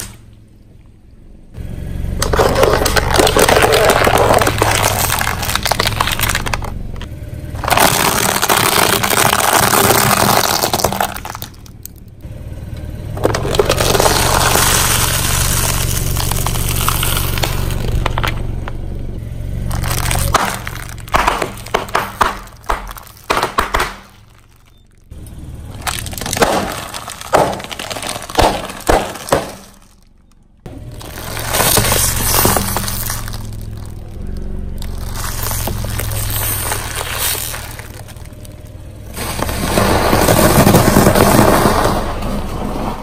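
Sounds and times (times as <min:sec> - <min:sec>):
low steady hum: 0:00.0 - 0:43.0
tyre crunching plastic toys: 0:02.2 - 0:12.0, 0:13.1 - 0:18.8, 0:19.6 - 0:43.0
sharp cracks of eggs: 0:19.7 - 0:24.6, 0:25.8 - 0:30.0.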